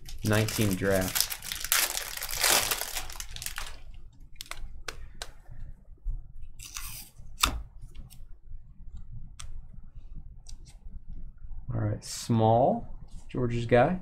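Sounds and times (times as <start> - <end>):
foil wrappers crinkling: 0.0 - 4.7.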